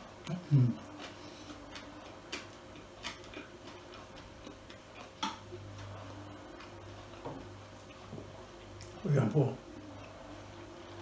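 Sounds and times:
chewing with mouth closed: 0.8 - 5.6.

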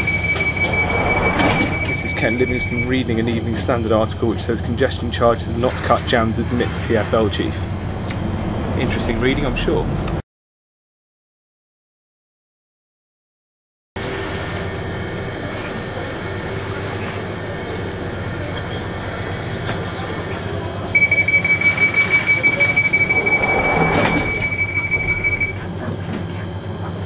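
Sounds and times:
train carriage rumble: 0.0 - 10.2, 14.0 - 27.0
high steady tone: 21.0 - 25.6.

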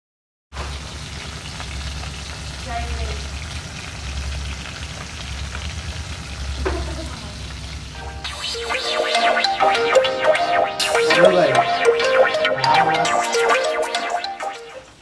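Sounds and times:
fish sizzling in hot oil: 0.6 - 8.7.

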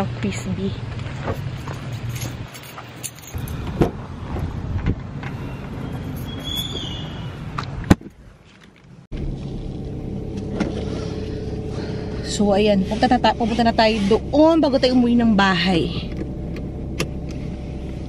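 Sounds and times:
keys jangling: 1.3 - 3.7, 5.9 - 6.8
car door opening: 3.4 - 8.2
car door shutting: 3.6 - 7.0
low hum inside car: 9.1 - 18.0.

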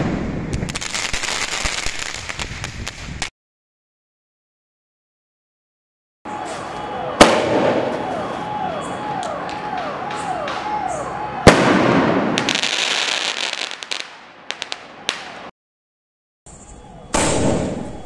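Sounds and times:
firework crackling: 0.0 - 3.3, 11.4 - 15.4.

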